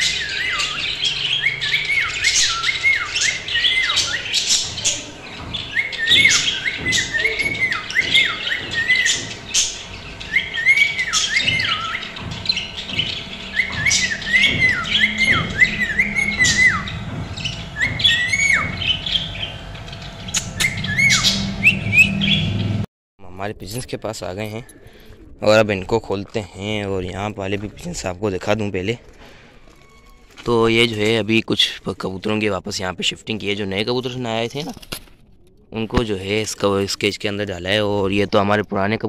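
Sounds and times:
parrots whistling chirps: 0:00.0 - 0:05.0, 0:05.6 - 0:22.7
parrot squawks and chatter: 0:00.0 - 0:22.3.

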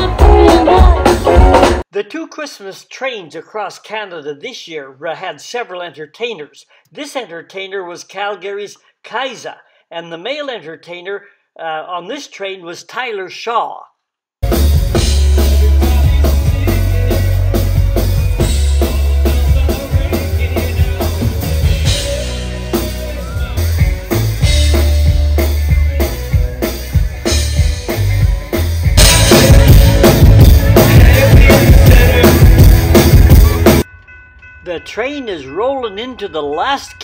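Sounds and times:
live band playing pop: 0:00.0 - 0:01.8, 0:14.4 - 0:33.9
electric guitar: 0:14.4 - 0:33.8
heavy kick drum: 0:23.8 - 0:33.8.

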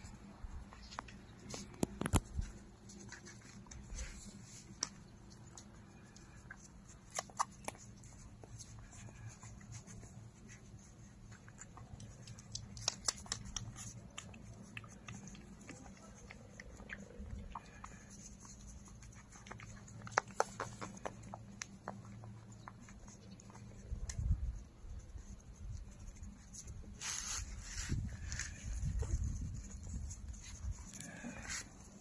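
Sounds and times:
faint low hum: 0:00.0 - 0:32.0
puppies suckling wet clicks: 0:04.6 - 0:26.9.

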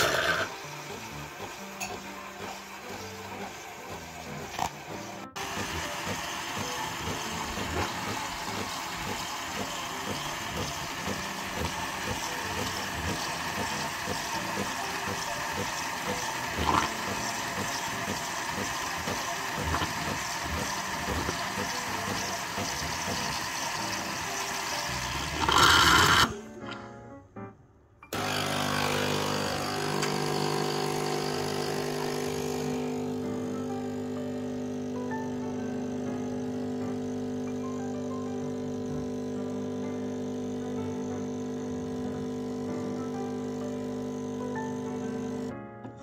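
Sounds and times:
milk and air hissing: 0:00.0 - 0:26.4, 0:28.2 - 0:33.2
milk frother pump humming: 0:00.0 - 0:26.4, 0:28.2 - 0:45.5.

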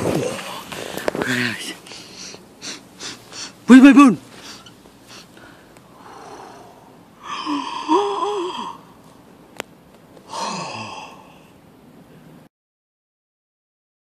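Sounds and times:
person sighing: 0:05.2 - 0:09.0, 0:10.3 - 0:11.5.

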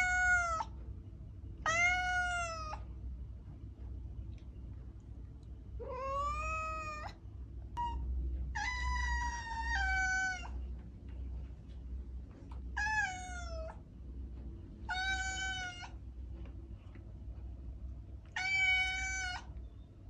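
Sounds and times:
cat meowing: 0:00.0 - 0:00.8, 0:01.6 - 0:02.8, 0:05.8 - 0:07.2, 0:07.8 - 0:10.6, 0:12.7 - 0:13.8, 0:14.9 - 0:16.0, 0:18.3 - 0:19.6
low hum: 0:00.0 - 0:20.0.

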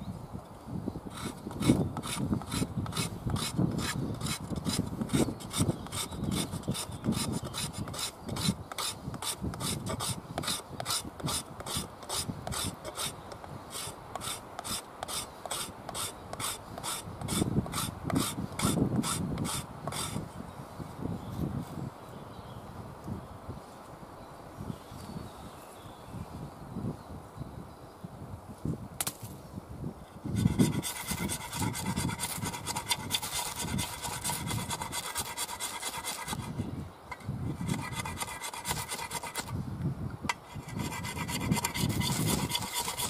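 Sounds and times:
shovel edge scraping wood: 0:01.1 - 0:20.2, 0:30.3 - 0:39.6, 0:40.4 - 0:43.0.

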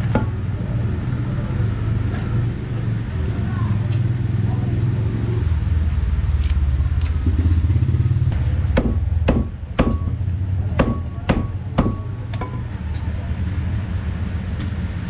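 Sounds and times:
low engine rumble: 0:00.0 - 0:15.0
cleaver chopping meat on block: 0:08.8 - 0:12.0.

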